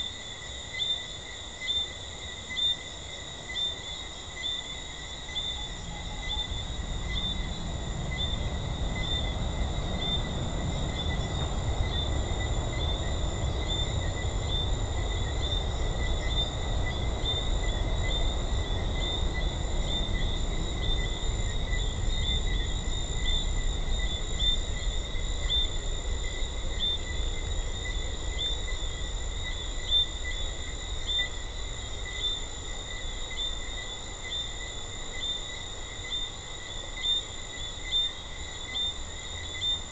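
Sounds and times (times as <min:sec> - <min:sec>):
treefrogs chirping: 0:00.0 - 0:39.9.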